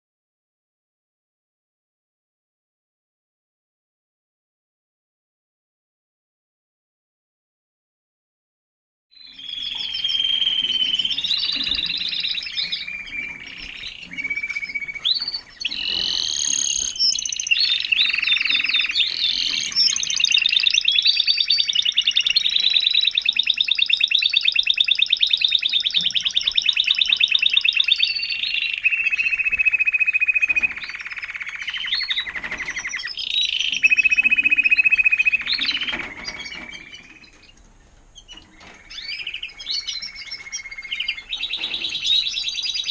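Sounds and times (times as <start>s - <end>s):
canary singing trills: 9.2s - 42.9s.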